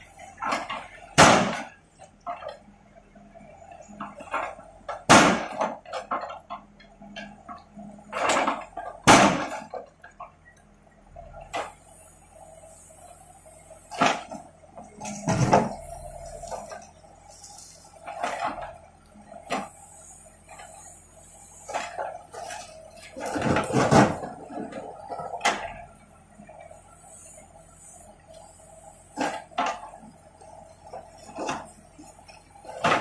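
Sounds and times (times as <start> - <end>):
diesel engine humming: 0.0 - 33.0.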